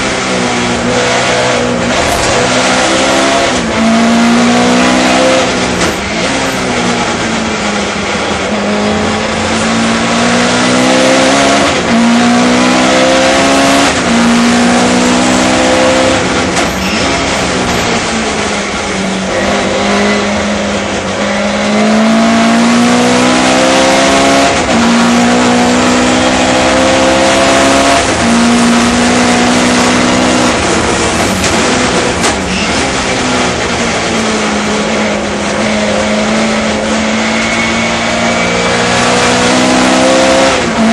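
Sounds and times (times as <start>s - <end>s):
race car engine with gear changes: 0.0s - 40.9s.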